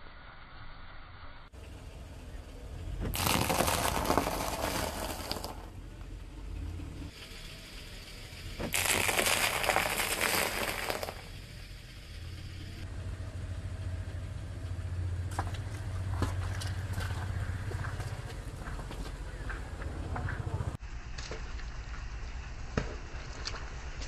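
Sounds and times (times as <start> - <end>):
car engine humming low: 1.6 - 3.2, 5.6 - 8.8, 11.2 - 20.8
tyre crunching food on concrete: 3.1 - 5.7, 8.7 - 11.2.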